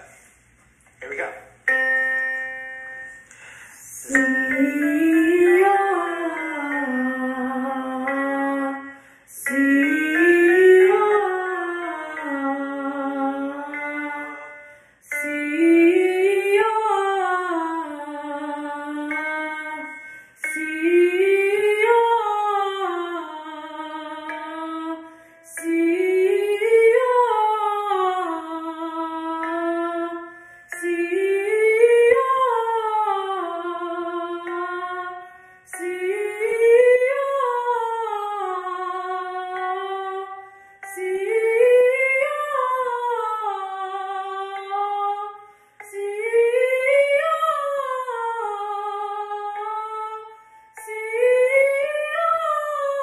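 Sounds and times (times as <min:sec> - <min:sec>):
woman singing vocal scales: 0:03.3 - 0:53.0.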